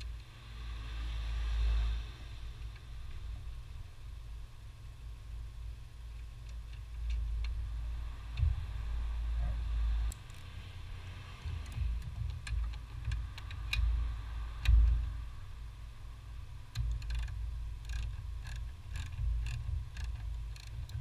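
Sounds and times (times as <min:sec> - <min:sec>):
wrench clicking on metal nut: 0:16.7 - 0:21.0.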